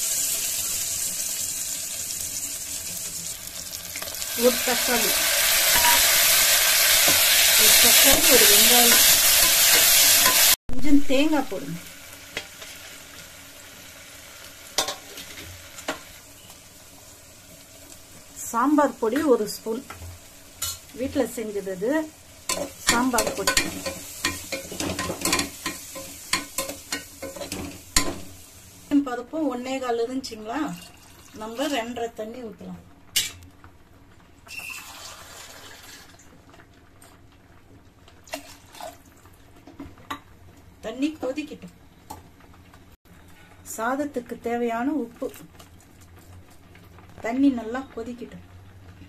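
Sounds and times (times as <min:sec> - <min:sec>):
water pouring into a pot: 0:00.0 - 0:06.5, 0:30.8 - 0:31.4, 0:34.5 - 0:36.7, 0:38.2 - 0:39.4
food sizzling in oil: 0:00.0 - 0:43.0.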